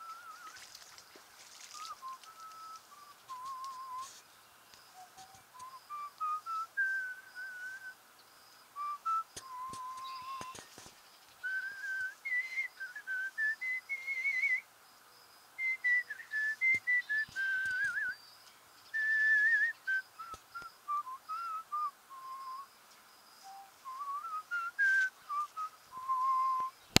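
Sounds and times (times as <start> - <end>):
man whistling a tune: 0.0 - 0.7, 1.6 - 4.1, 5.0 - 8.0, 8.8 - 10.7, 11.4 - 14.6, 15.6 - 18.2, 18.9 - 22.7, 23.4 - 27.0.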